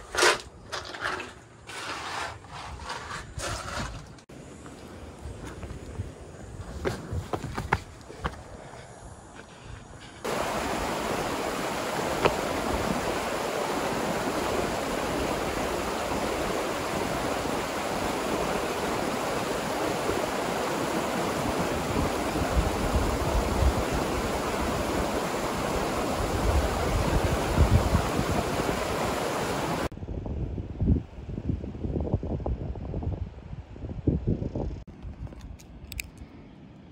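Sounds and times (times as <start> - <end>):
river water rushing: 10.3 - 29.9.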